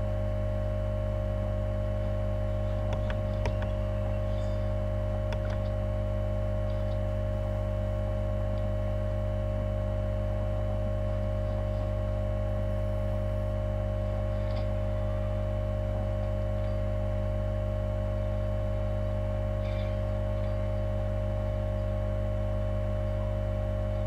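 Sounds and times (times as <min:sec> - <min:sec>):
steady electrical hum: 0:00.0 - 0:24.0
faint clicks: 0:02.9 - 0:03.8.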